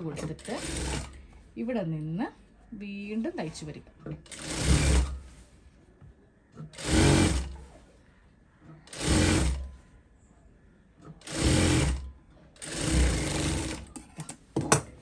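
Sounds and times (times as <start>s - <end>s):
sewing machine stitching: 0.2s - 1.2s, 4.2s - 5.2s, 6.7s - 7.6s, 8.9s - 9.7s, 11.2s - 13.9s.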